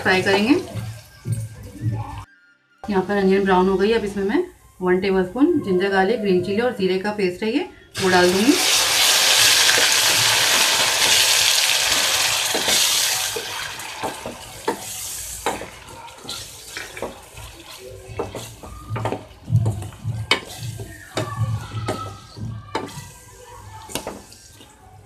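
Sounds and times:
paste sizzling in hot oil: 0:08.0 - 0:24.4
spatula scraping steel pot: 0:14.6 - 0:23.3.

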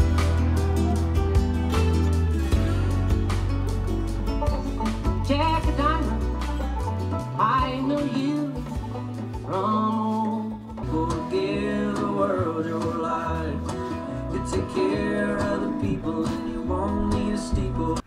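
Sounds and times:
country song with guitar: 0:00.0 - 0:18.0
person singing: 0:05.1 - 0:06.4, 0:07.2 - 0:18.0.

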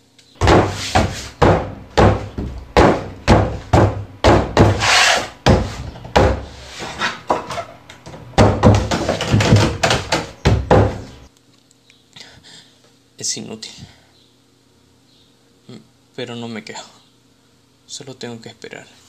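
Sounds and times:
wooden door being pounded: 0:00.4 - 0:06.6, 0:08.2 - 0:11.3.

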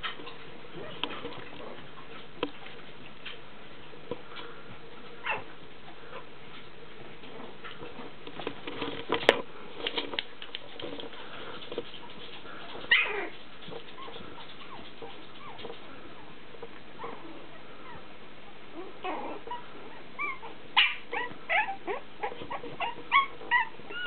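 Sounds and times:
puppies squeaking and yipping: 0:11.8 - 0:16.3, 0:18.8 - 0:24.0.

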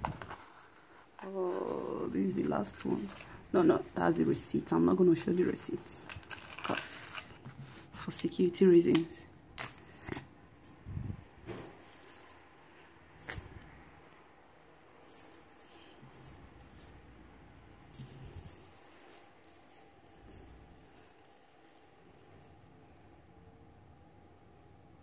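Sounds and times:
metal chains jingling: 0:14.9 - 0:17.0, 0:17.9 - 0:22.6.

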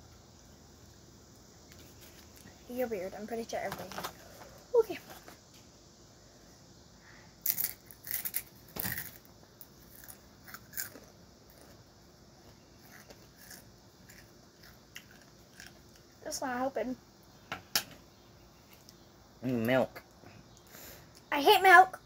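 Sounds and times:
crunching tortilla chip: 0:07.4 - 0:11.8, 0:12.8 - 0:16.1.

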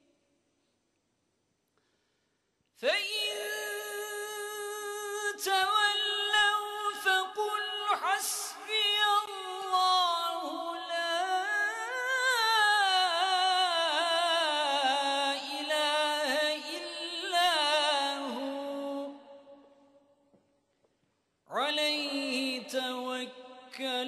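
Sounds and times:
solo voice reciting melodically: 0:02.8 - 0:19.5, 0:21.5 - 0:24.0.

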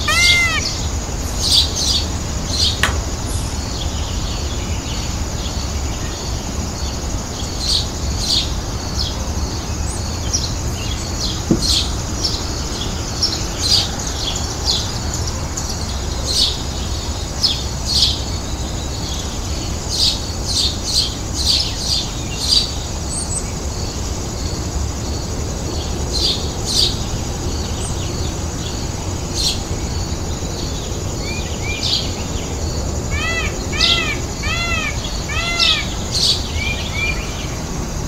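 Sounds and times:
arching bird calls: 0:00.0 - 0:04.2, 0:32.9 - 0:37.4
birds chirping: 0:00.0 - 0:05.9, 0:31.5 - 0:37.8.

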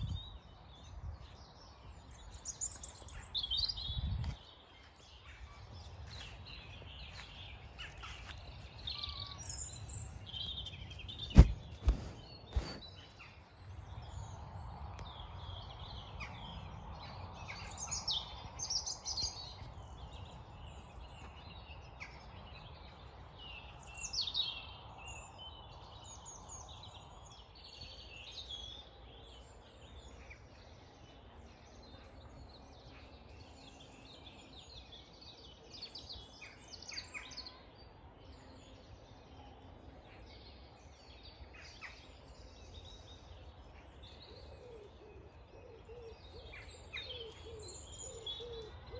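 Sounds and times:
songbirds chirping: 0:00.0 - 0:48.9.

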